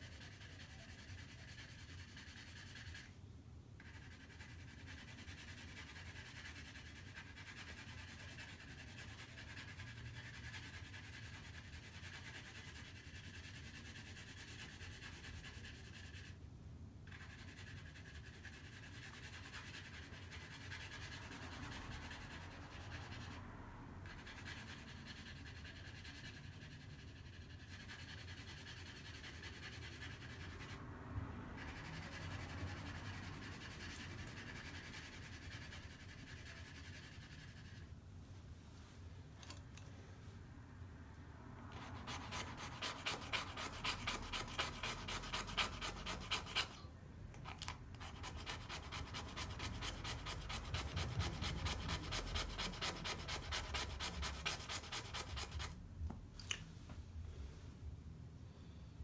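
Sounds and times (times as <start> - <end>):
pencil scratching on paper: 0.0 - 3.2, 3.8 - 16.4, 17.0 - 37.9, 41.6 - 55.8.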